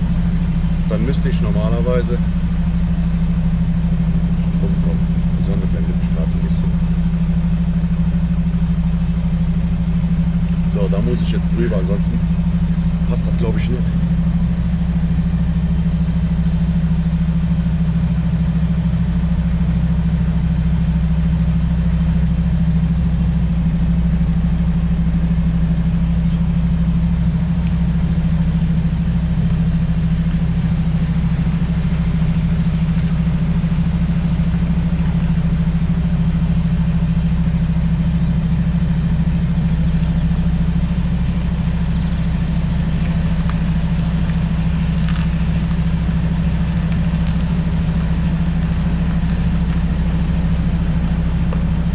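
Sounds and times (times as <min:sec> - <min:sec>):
truck diesel engine humming: 0:00.0 - 0:51.9.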